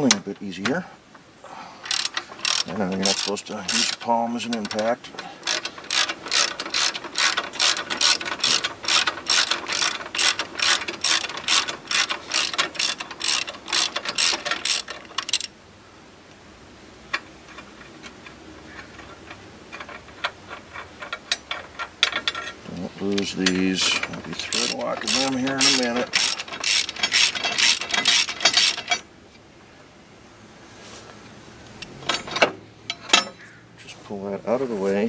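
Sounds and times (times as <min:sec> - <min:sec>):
ratchet wrench clicking: 0:01.8 - 0:15.5, 0:17.5 - 0:29.0.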